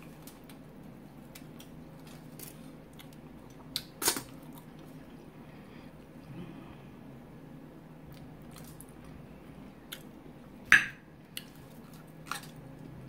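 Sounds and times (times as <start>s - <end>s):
quiet chewing: 0.0s - 5.3s, 11.3s - 13.0s
low steady hum: 0.0s - 13.0s.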